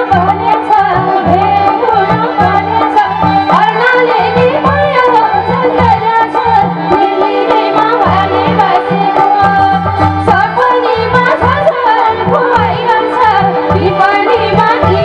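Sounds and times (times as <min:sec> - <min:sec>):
hand drum rhythm: 0:00.0 - 0:15.0.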